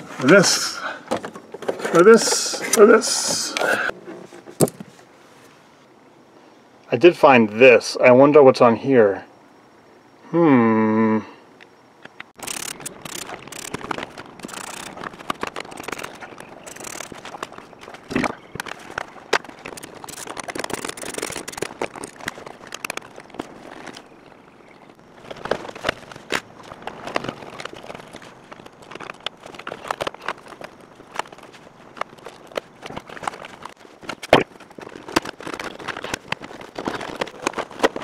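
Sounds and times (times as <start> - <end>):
rustling: 12.4 - 38.0.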